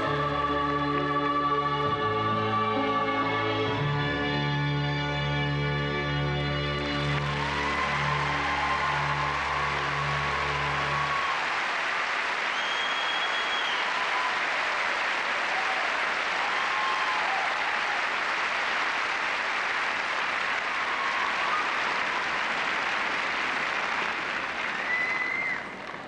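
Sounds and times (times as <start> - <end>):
audience applauding: 6.7 - 26.0.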